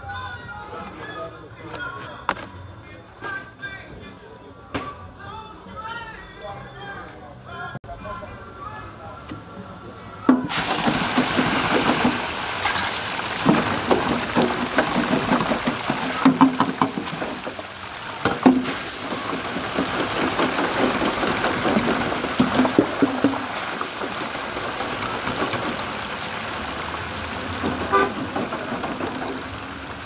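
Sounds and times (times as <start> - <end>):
metal baskets clanking on fryer: 10.3 - 30.0
fries sizzling in hot oil: 10.4 - 30.0.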